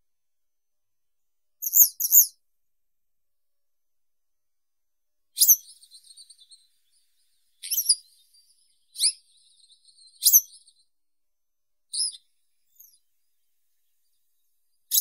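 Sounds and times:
faint bird twitter: 0:01.6 - 0:02.4, 0:05.3 - 0:11.0, 0:11.9 - 0:15.0
bird singing high sharp notes: 0:05.4 - 0:10.8.

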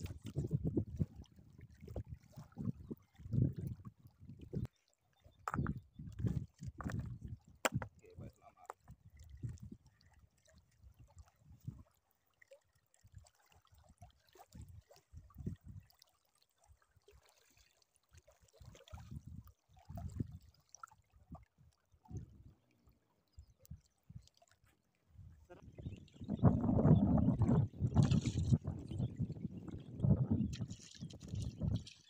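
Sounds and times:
small waves lapping: 0:00.0 - 0:03.9, 0:07.6 - 0:26.2, 0:30.5 - 0:32.0.

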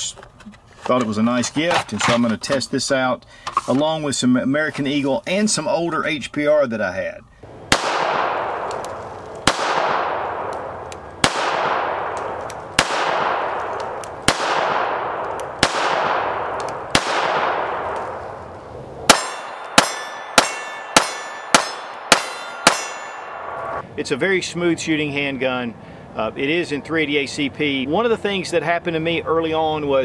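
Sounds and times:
pistol shots with echo: 0:07.6 - 0:18.4, 0:19.0 - 0:23.8.

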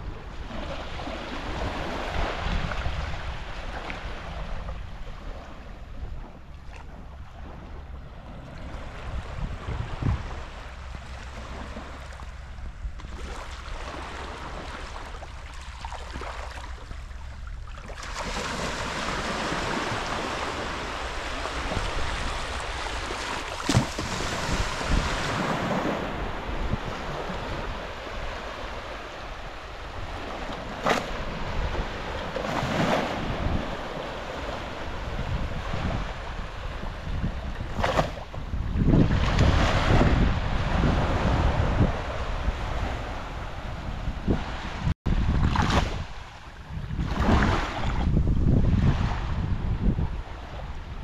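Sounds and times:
waves lapping on sandy shore: 0:00.0 - 0:51.0
wind rumble on microphone: 0:00.0 - 0:51.0.

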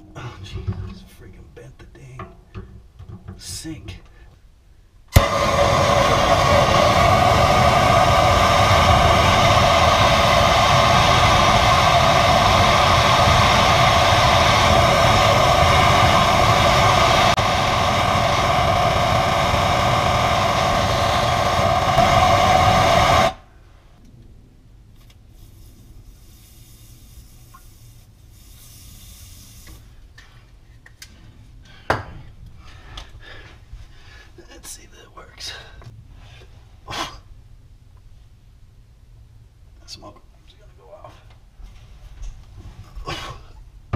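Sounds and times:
blowtorch burning: 0:05.1 - 0:23.5, 0:25.0 - 0:30.0.

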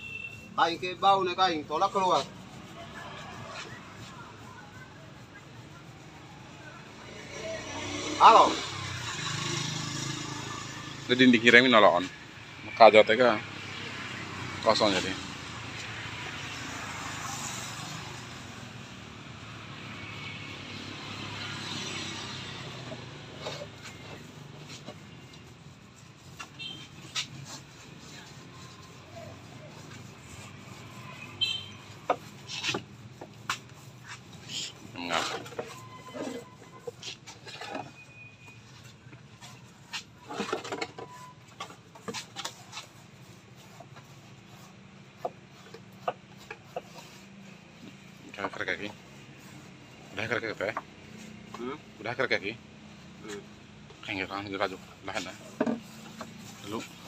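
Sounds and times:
passing vehicle engine drone: 0:07.0 - 0:11.5, 0:13.4 - 0:23.4
brief squeak: 0:37.7 - 0:38.6, 0:40.3 - 0:41.4.

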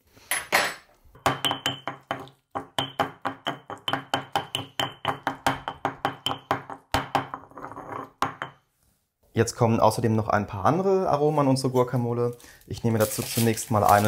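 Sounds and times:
stone pestle pounding in mortar: 0:01.2 - 0:08.6.

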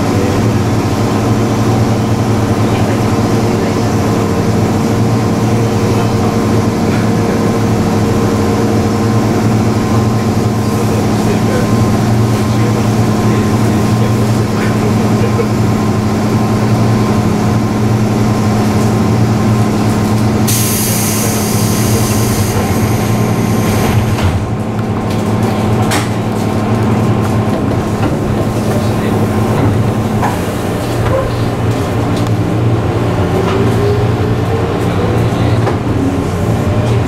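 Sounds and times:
train equipment hum: 0:00.0 - 0:37.0
train doors closing with hiss: 0:20.4 - 0:24.6.

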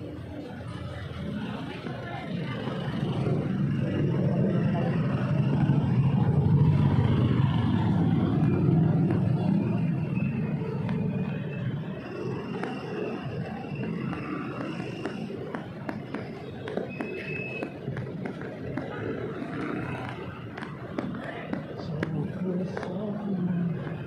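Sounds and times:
vehicle engines in slow traffic: 0:00.0 - 0:24.0.

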